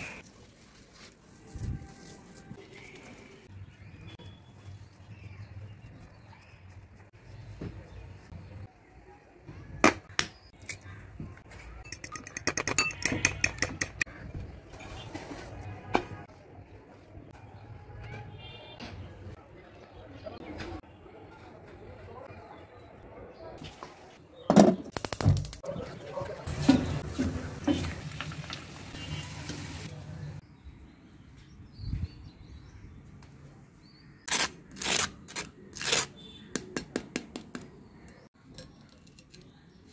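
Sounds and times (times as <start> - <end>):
chicken deep-frying in oil: 26.0 - 30.4.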